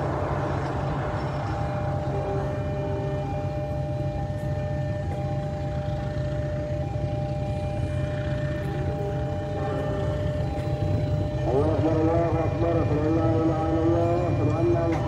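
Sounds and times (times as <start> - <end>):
diesel locomotive engine running: 0.0 - 15.0.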